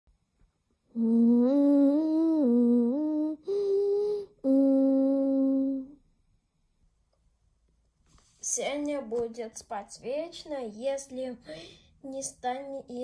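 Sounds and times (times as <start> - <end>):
person humming a tune: 0.9 - 6.0.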